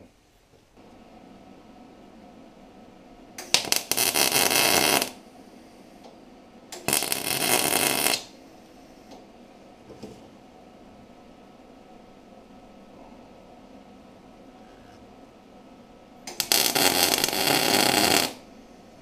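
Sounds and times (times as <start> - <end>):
arc welding crackling: 3.4 - 5.2, 6.7 - 8.4, 16.2 - 18.5.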